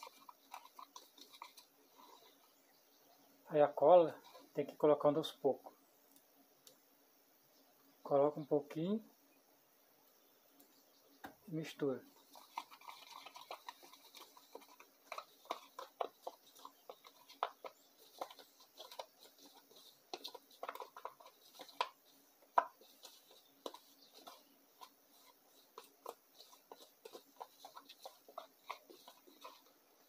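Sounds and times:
fork scraping plastic cup: 0.0s - 2.4s, 12.2s - 30.0s.

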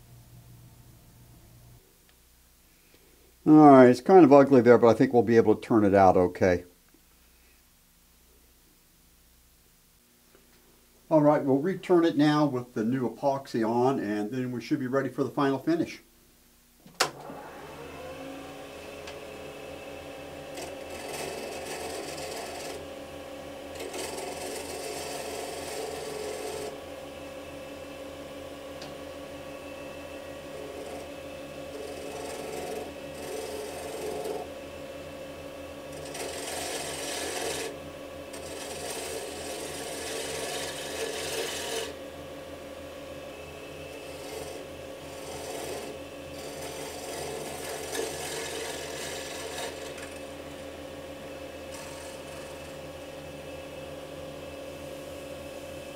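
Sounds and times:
wood lathe running: 17.0s - 55.9s
turning tool scraping: 18.4s - 22.9s, 23.7s - 26.8s, 29.8s - 34.5s, 35.9s - 42.0s, 43.4s - 50.6s, 51.6s - 53.1s.

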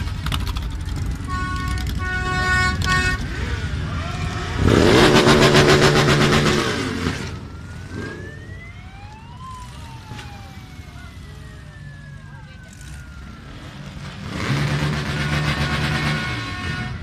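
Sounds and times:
faint siren wailing: 3.7s - 14.3s
motorcycle engine passing: 4.4s - 8.6s.

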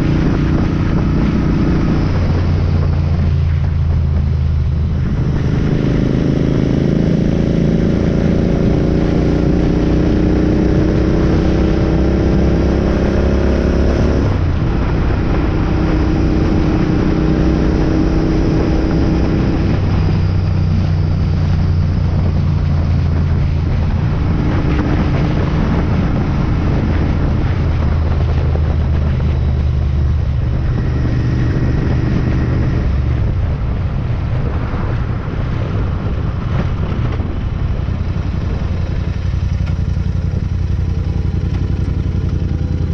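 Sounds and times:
motorcycle engine accelerating: 0.0s - 42.9s.

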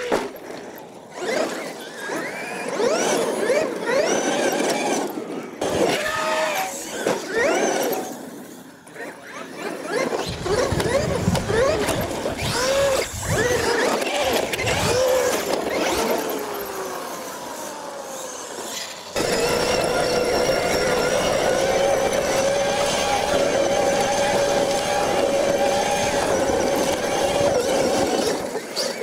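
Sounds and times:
electric motor whining: 0.0s - 29.0s
tyre noise on dirt: 9.9s - 16.3s.

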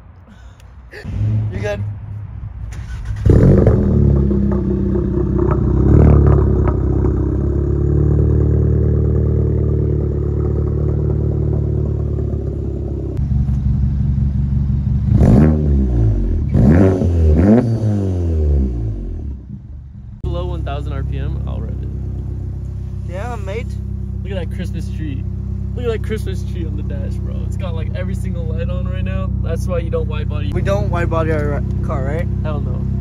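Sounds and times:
engine revving: 1.1s - 33.0s
loud car engine idling: 2.8s - 15.2s, 19.4s - 33.0s.

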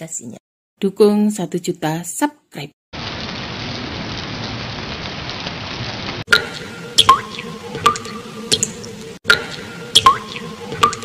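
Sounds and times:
rain-like hiss: 3.0s - 7.6s
water-drop plinks sliding in pitch: 6.3s - 11.0s.

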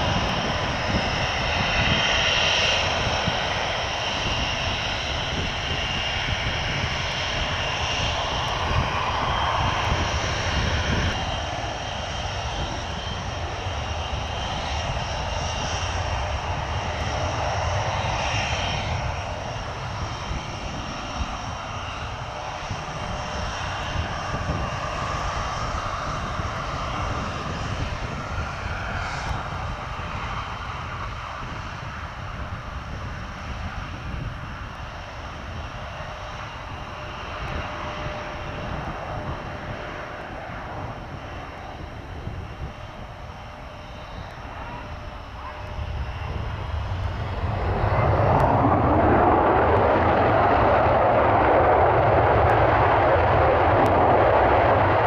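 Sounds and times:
jet engines whining and roaring: 0.0s - 55.0s.

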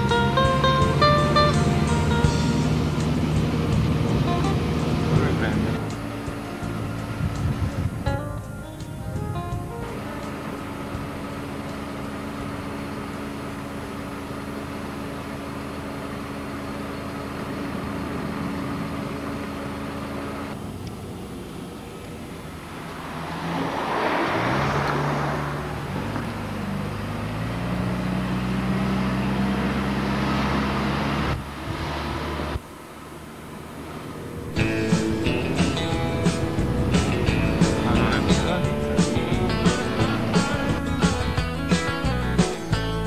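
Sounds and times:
car engine running: 0.0s - 22.7s, 29.6s - 43.0s
road noise: 0.0s - 43.0s
rush of noise: 34.1s - 42.8s.

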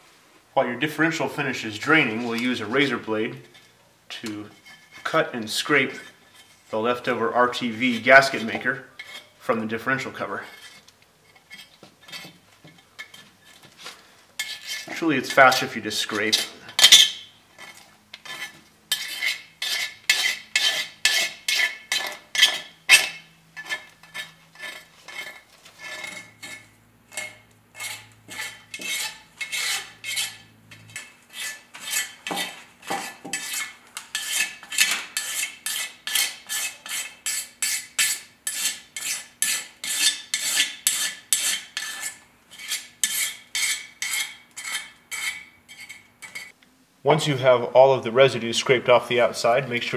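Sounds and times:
razor blade scraping metal: 4.5s - 6.8s, 7.6s - 9.4s, 10.5s - 12.4s, 14.4s - 46.6s.

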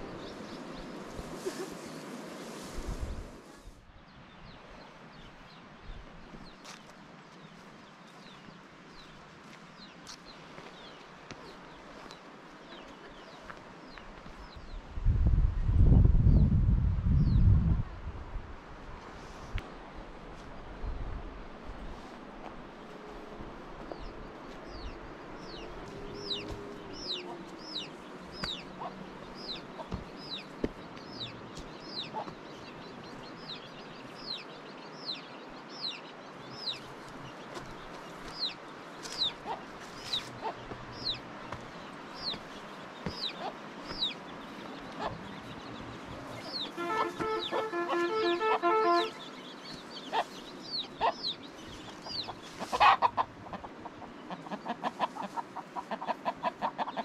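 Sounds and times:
chick peeping: 24.7s - 57.0s
chicken pulsed calls: 46.4s - 49.2s, 52.0s - 57.0s.

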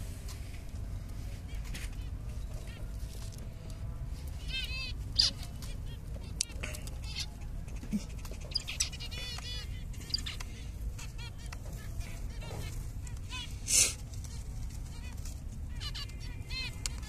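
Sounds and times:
finches chirping: 4.4s - 13.6s.

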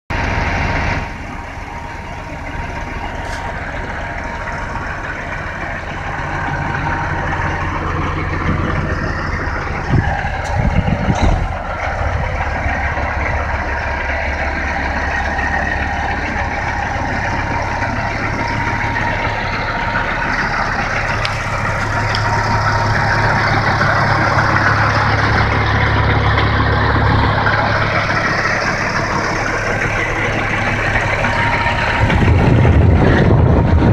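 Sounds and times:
diesel engine idling: 0.1s - 33.9s.

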